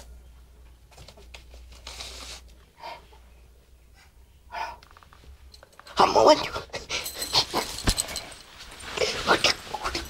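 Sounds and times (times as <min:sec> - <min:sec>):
low steady hum: 0:00.0 - 0:10.0
cloth rustling: 0:06.8 - 0:10.0.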